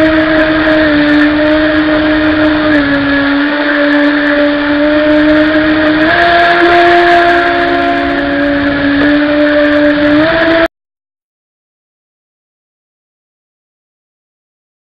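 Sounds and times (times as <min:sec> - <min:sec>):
model jet boat motor whine: 0:00.0 - 0:10.7.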